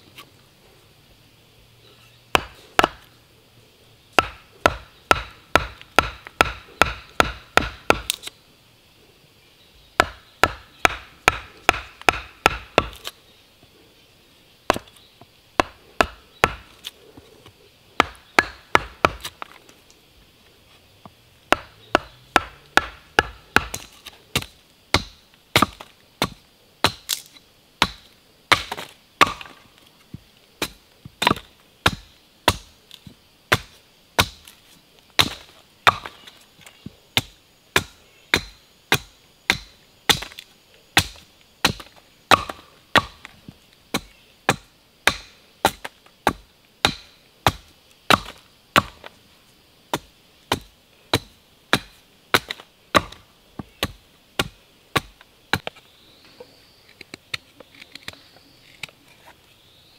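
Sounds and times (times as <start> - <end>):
chisel hammered into log: 2.3 - 3.0, 4.2 - 8.2, 10.0 - 13.0, 18.0 - 19.3, 21.5 - 27.2, 27.8 - 29.5, 37.2 - 40.4, 41.0 - 43.3, 43.9 - 49.0
hatchet chopping branch: 2.3 - 3.1, 4.2 - 8.3, 10.0 - 13.1, 15.6 - 16.9, 18.0 - 19.5, 21.5 - 29.6, 30.6 - 34.6, 35.2 - 36.4, 37.2 - 49.1, 49.9 - 55.7.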